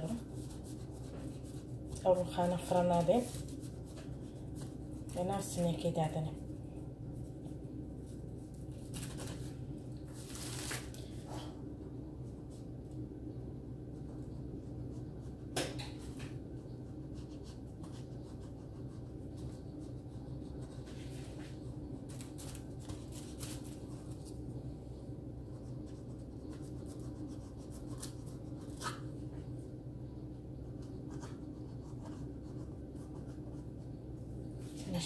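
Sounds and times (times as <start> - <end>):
steady low hum: 0.0 - 35.0
hands rustling dough sheets: 7.1 - 11.2.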